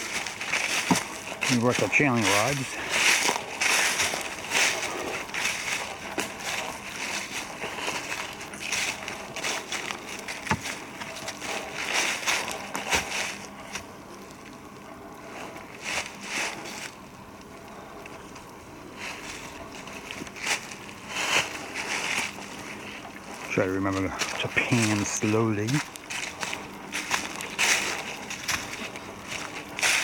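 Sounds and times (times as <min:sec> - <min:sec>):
footsteps crunching dry leaves: 0:00.0 - 0:30.0
twigs snapping: 0:24.2 - 0:30.0.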